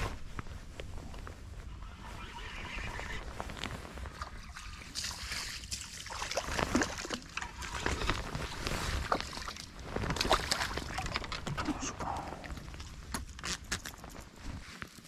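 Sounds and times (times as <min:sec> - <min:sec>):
small crackles and clicks: 0:00.0 - 0:15.0
river water sloshing and trickling: 0:03.6 - 0:11.7.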